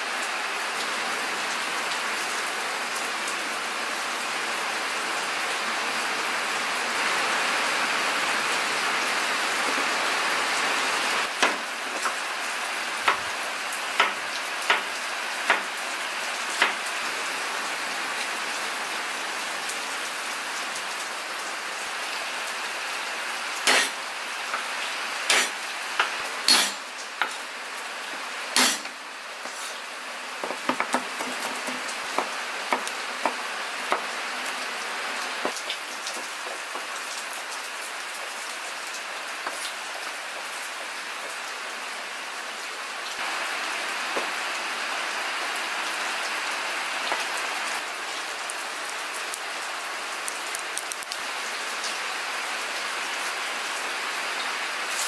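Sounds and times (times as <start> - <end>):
steady rain falling: 0.0 - 55.0
cleaver knocking on cutting board: 30.4 - 34.0.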